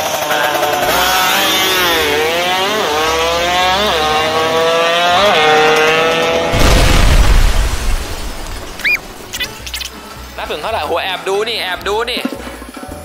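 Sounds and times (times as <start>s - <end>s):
jet ski engine accelerating: 0.0s - 6.6s
loud rushing noise: 6.5s - 9.4s.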